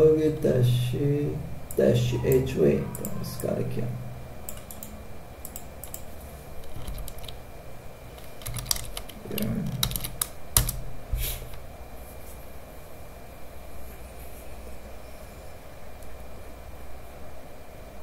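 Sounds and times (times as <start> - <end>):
typing on computer keyboard: 4.5 - 7.4, 8.2 - 10.8.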